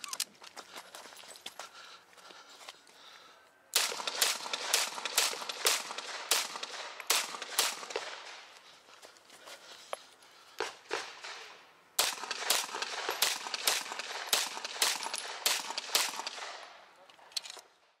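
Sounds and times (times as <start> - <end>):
pistol shots: 3.8 - 8.4, 10.9 - 16.8
faint gunshots: 3.8 - 8.5, 10.6 - 16.8.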